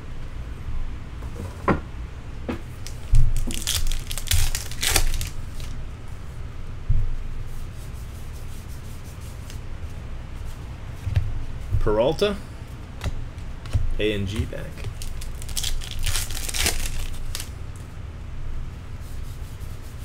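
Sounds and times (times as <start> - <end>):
cards being shuffled: 2.8 - 5.8, 13.0 - 17.5
wrapper tearing and crinkling: 2.9 - 5.8, 14.7 - 17.5
low thumps: 6.8 - 7.2.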